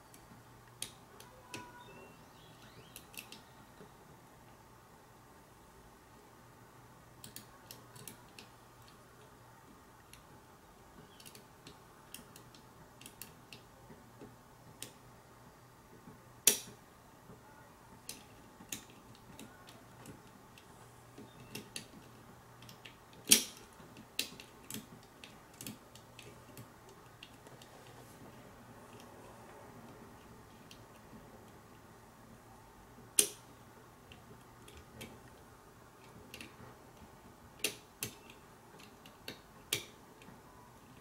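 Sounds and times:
lock picking metallic clicks: 0:16.4 - 0:16.8, 0:21.2 - 0:27.4, 0:33.2 - 0:33.5, 0:37.6 - 0:40.0.

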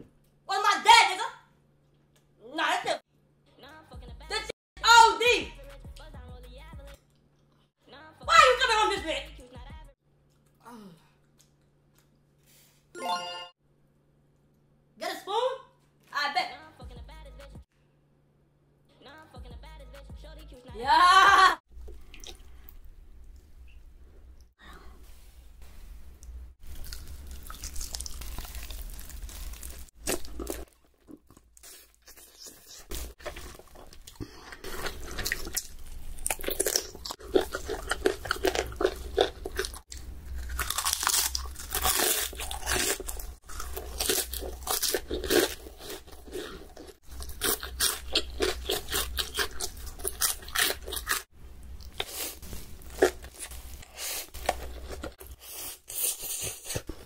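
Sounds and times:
crunching and chewing fried chicken: 0:26.6 - 0:57.0.

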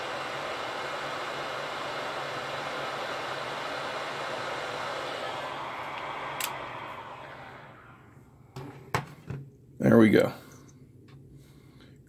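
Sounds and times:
heat gun blowing air: 0:00.0 - 0:08.2
heat gun switch click: 0:05.9 - 0:06.7.

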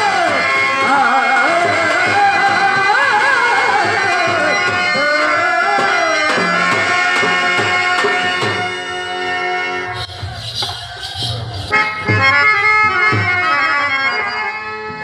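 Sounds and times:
person singing: 0:00.0 - 0:07.6
tabla strokes: 0:00.0 - 0:09.0, 0:09.9 - 0:13.8
harmonium chords: 0:00.0 - 0:15.0.

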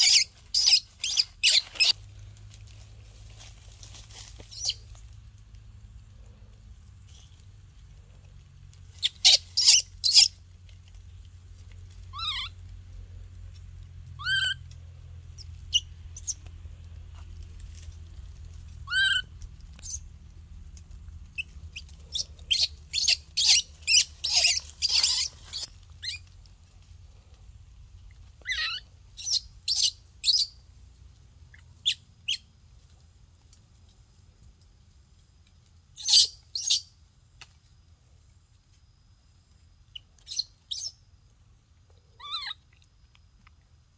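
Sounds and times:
baby monkey squealing: 0:00.0 - 0:02.0, 0:04.5 - 0:04.8, 0:09.0 - 0:10.4, 0:12.1 - 0:12.6, 0:14.2 - 0:14.6, 0:15.7 - 0:16.4, 0:18.8 - 0:20.0, 0:21.4 - 0:26.2, 0:28.4 - 0:30.5, 0:36.0 - 0:36.8, 0:40.3 - 0:41.0, 0:42.2 - 0:42.6.

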